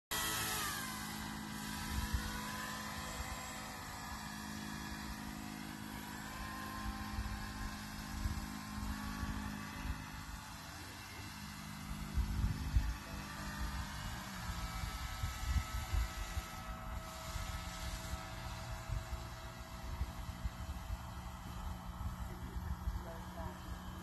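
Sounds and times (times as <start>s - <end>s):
model motor and propeller droning: 0.1s - 24.0s
wind buffeting microphone: 14.7s - 21.3s.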